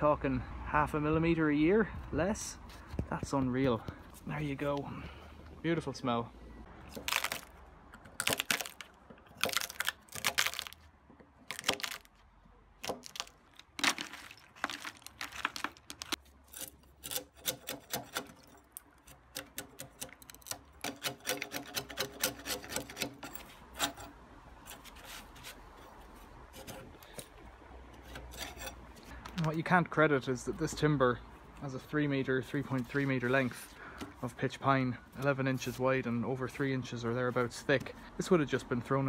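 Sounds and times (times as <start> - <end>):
wood cracking and snapping: 6.9 - 12.2, 12.8 - 23.2
chisel blade scraping wood: 16.2 - 29.1.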